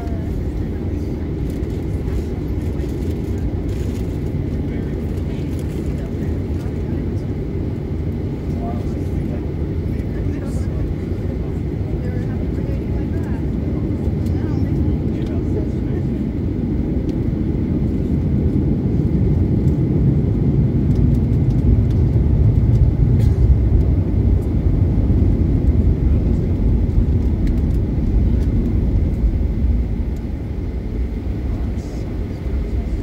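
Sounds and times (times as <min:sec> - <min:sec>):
aircraft engines rumbling: 0:00.0 - 0:33.0.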